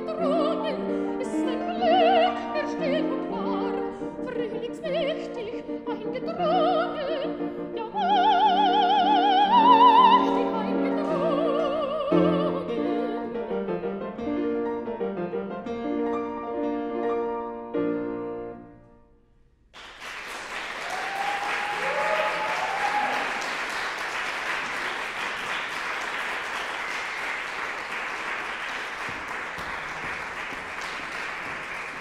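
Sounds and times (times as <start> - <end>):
grand piano chords: 0.0 - 19.3
audience applause: 19.8 - 32.0
audience whoops: 20.6 - 24.0.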